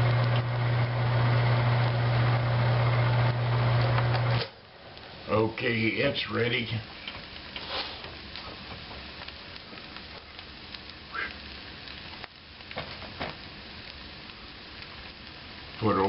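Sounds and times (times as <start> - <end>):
egg sizzling in frying pan: 0.0 - 16.0.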